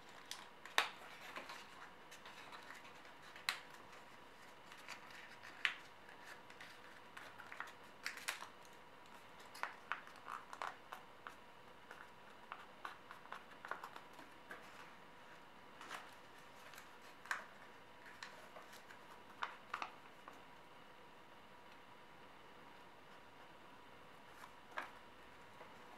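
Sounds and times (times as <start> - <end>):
paper being folded and creased: 0.0 - 15.0, 15.8 - 20.4.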